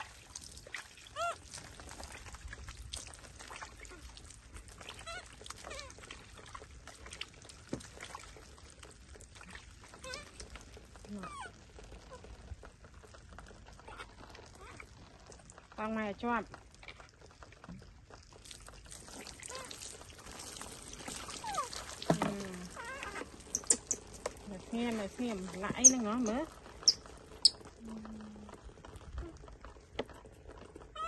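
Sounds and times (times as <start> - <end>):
water pouring and dripping: 0.0 - 31.0
baby monkeys squeaky calls: 22.7 - 24.1, 25.8 - 27.6.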